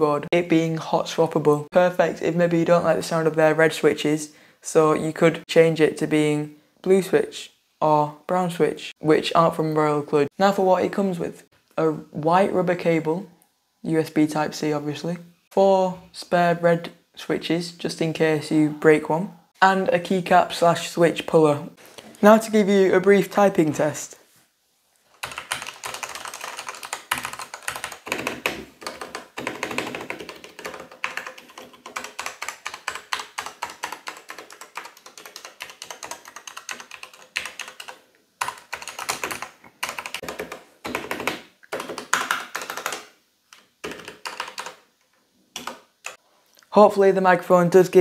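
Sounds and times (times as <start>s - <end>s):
mechanical keyboard typing: 25.2s - 44.8s, 45.6s - 46.2s.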